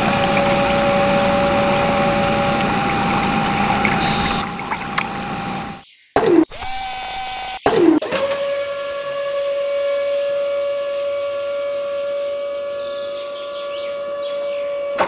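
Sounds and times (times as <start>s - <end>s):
small electric motor whine: 6.5s - 15.0s.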